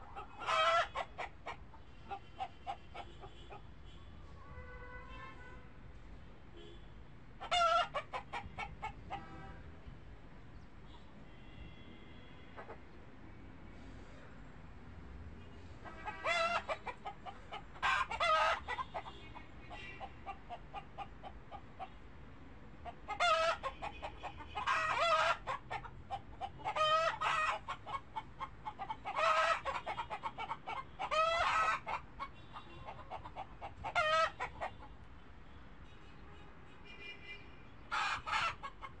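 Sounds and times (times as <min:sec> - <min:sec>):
chicken cackling calls: 0:00.0 - 0:03.6, 0:07.4 - 0:09.5, 0:15.8 - 0:22.0, 0:22.8 - 0:35.0, 0:37.9 - 0:39.0
chickens clucking: 0:00.0 - 0:03.6, 0:07.4 - 0:09.4, 0:15.8 - 0:22.0, 0:22.8 - 0:35.0, 0:37.9 - 0:39.0.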